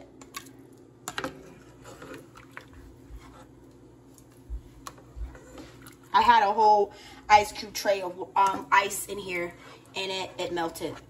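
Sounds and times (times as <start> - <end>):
faint kitchen clicks and taps: 4.1 - 6.0.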